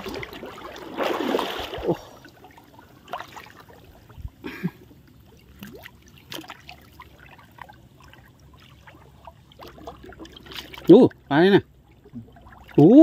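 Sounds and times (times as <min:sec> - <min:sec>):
water splashing and trickling: 0:00.0 - 0:13.0.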